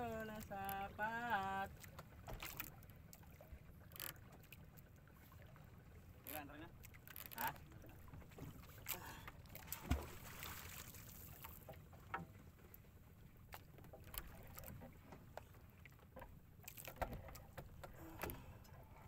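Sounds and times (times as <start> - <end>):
water washing against hull: 0.0 - 19.0
boat knocks and bumps: 6.3 - 19.0.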